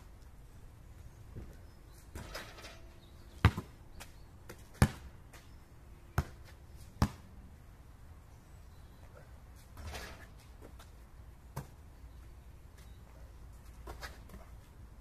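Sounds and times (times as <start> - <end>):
basketball bouncing on asphalt: 1.4 - 5.5, 6.1 - 7.3, 11.5 - 11.8.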